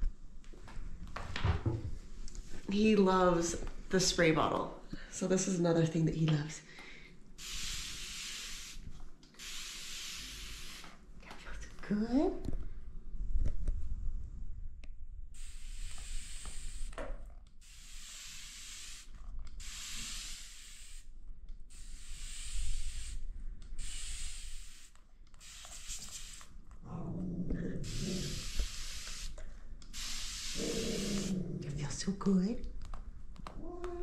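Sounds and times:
spray bottle misting: 0:07.4 - 0:11.0, 0:15.4 - 0:17.0, 0:17.6 - 0:21.1, 0:21.7 - 0:23.2, 0:23.8 - 0:26.6, 0:27.9 - 0:31.3.

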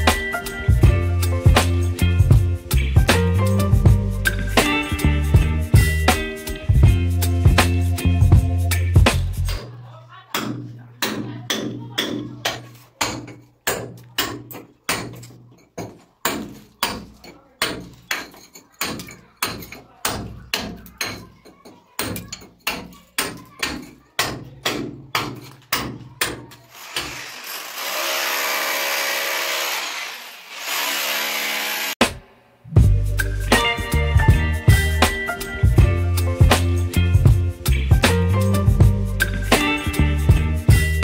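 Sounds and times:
background music with steady beat: 0:00.0 - 0:26.6, 0:32.0 - 0:41.0
rotary hammer chiselling brick: 0:10.4 - 0:30.0.

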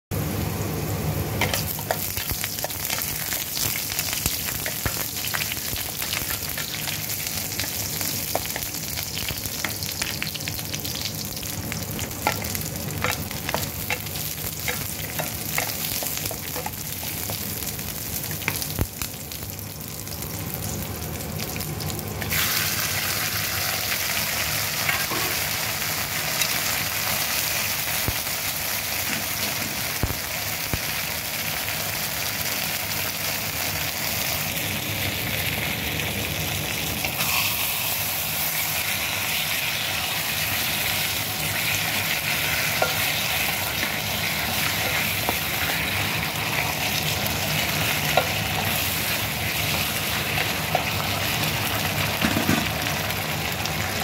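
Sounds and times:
aromatics sizzling in oil: 0:00.2 - 0:54.0.

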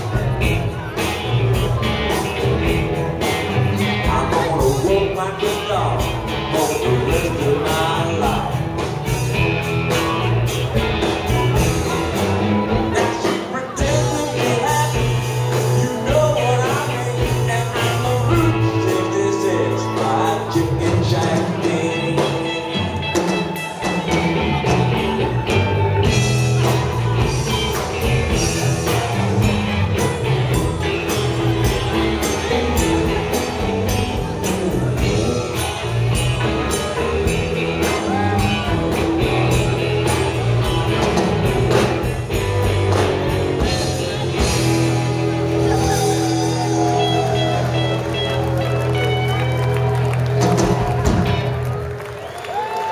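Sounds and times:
bass guitar: 0:00.0 - 0:52.9
drum kit beat: 0:00.0 - 0:52.9
electric guitars: 0:00.0 - 0:52.9
keyboard: 0:00.0 - 0:52.9.

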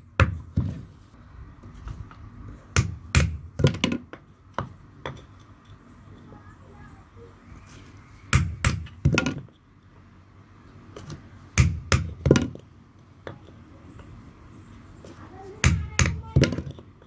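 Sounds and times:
hammer striking chisel: 0:11.6 - 0:12.6.

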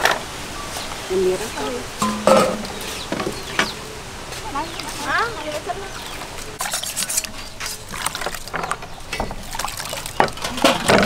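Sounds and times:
wet squelching and splashing: 0:06.0 - 0:11.0.

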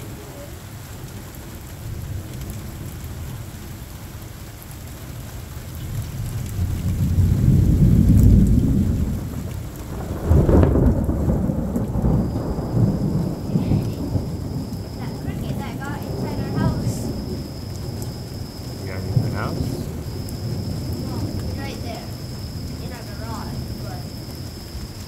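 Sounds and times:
steady rain: 0:00.0 - 0:25.0
rolling thunder: 0:05.2 - 0:25.0
sharp thunder clap: 0:05.8 - 0:24.5.

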